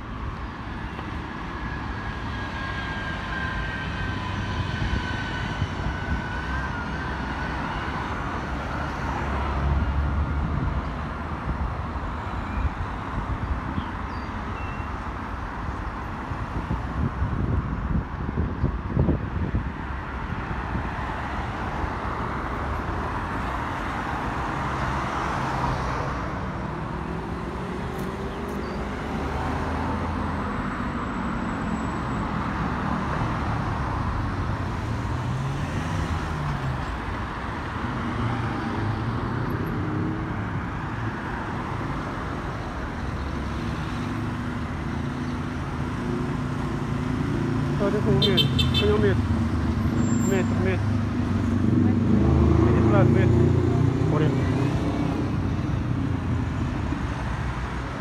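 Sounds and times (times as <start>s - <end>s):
traffic rumble: 0.0s - 58.0s
car engines revving: 19.8s - 58.0s.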